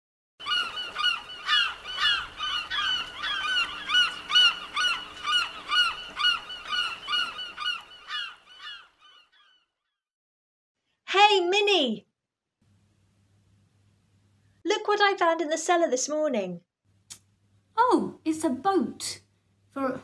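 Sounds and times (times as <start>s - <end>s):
seagulls calling: 0.4s - 9.7s.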